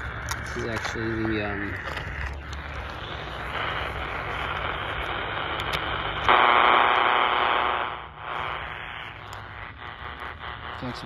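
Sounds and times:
radio static hiss: 0.0s - 11.0s.

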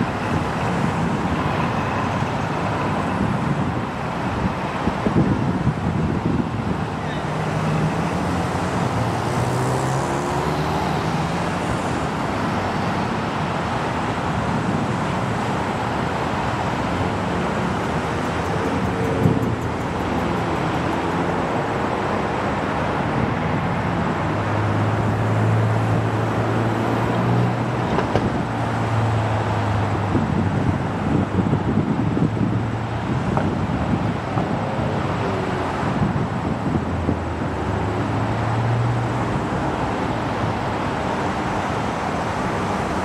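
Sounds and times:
road traffic: 0.0s - 43.0s
vehicle passing: 7.4s - 12.9s, 16.8s - 27.8s.

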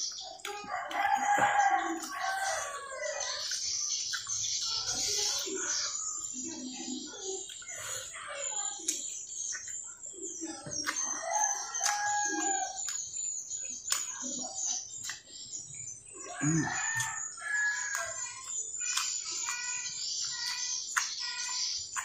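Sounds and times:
close chewing and mouth clicks: 0.0s - 6.0s, 7.3s - 22.0s
rooster crowing: 0.6s - 3.2s, 11.1s - 12.8s, 16.3s - 18.2s.

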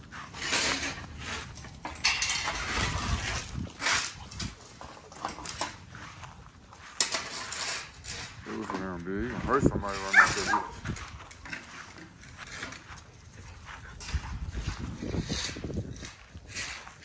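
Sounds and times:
dogs moving in kennel: 0.3s - 6.1s, 9.9s - 14.4s
metallic clatter: 0.4s - 5.8s.

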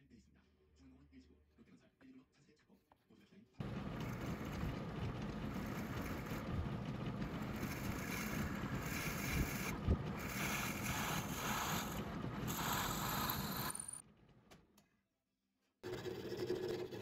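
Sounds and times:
drill press boring into wood: 7.3s - 14.0s.

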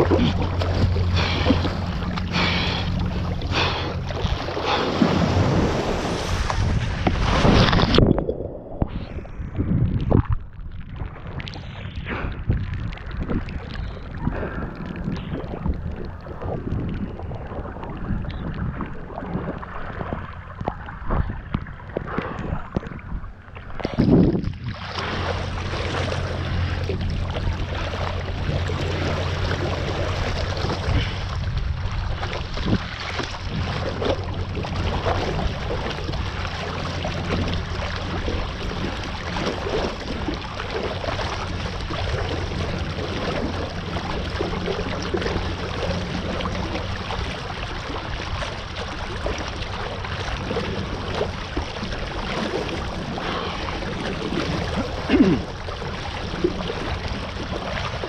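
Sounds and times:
low rumble: 0.0s - 58.0s
wind rushing over microphone: 4.2s - 35.9s
loud wind buffet: 4.6s - 10.5s.

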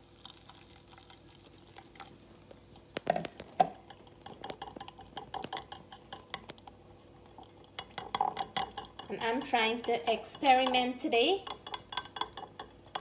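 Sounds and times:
metal utensil clinking on strainer: 7.8s - 13.0s.

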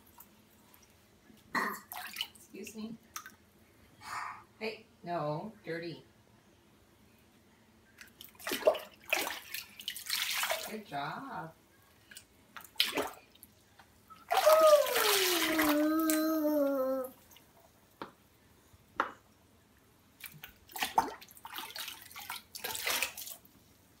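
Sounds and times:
water splashing and dripping: 8.0s - 10.7s, 14.3s - 16.2s, 20.2s - 23.5s.

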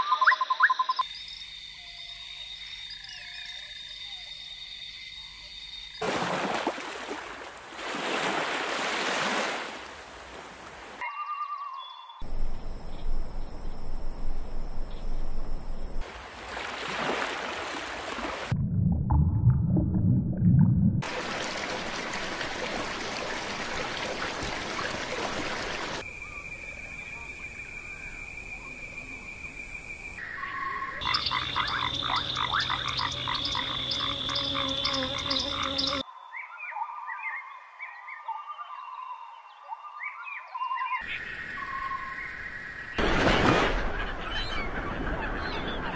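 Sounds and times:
insects trilling: 0.0s - 6.0s, 26.0s - 36.0s
frogs croaking: 0.0s - 6.1s, 21.1s - 43.0s.

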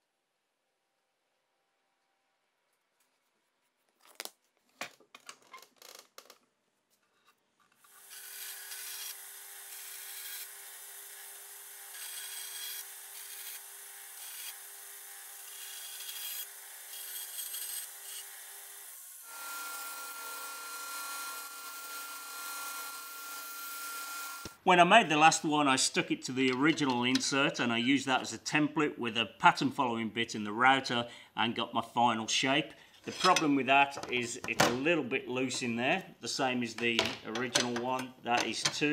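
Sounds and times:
bandsaw cutting wood: 7.8s - 24.6s
disc sander grinding wood: 7.9s - 18.6s, 19.2s - 24.6s.

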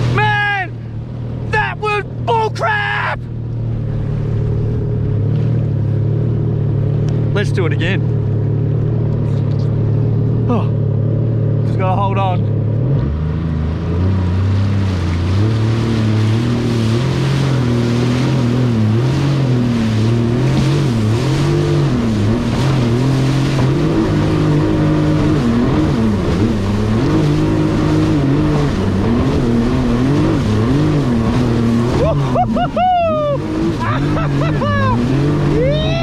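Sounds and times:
rush of water and wind: 0.0s - 8.1s, 11.8s - 36.0s
jet ski engine running hard: 0.0s - 36.0s.

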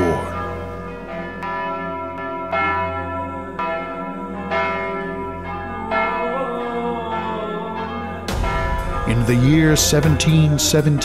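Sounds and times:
church bells ringing: 0.0s - 11.0s.

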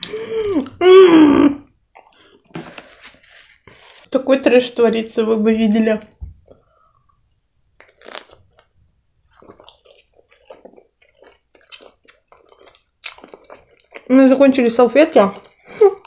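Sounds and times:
person chewing food: 1.8s - 3.0s, 6.4s - 14.1s.

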